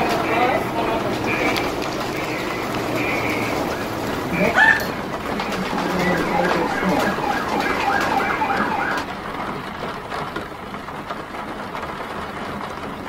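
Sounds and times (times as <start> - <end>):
rain hiss: 0.0 - 10.2
city traffic: 0.0 - 13.0
siren yelping: 1.2 - 9.1.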